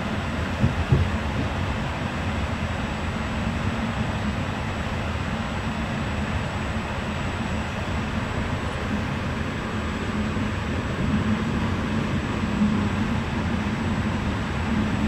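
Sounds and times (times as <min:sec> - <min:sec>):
train wheels rumbling: 0:00.0 - 0:04.2.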